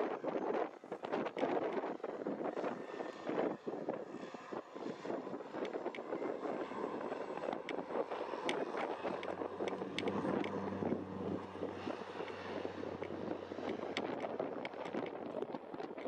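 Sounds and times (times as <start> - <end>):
wind buffeting microphone: 0.0 - 16.0
turboprop engines drone: 0.2 - 16.0.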